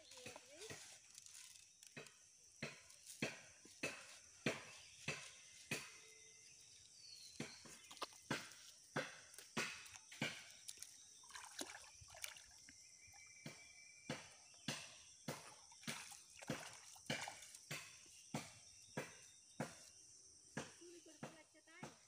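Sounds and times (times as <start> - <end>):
footsteps wading in water: 3.9 - 13.4, 14.8 - 18.1
water sloshing and dripping: 6.8 - 13.6, 14.2 - 18.2.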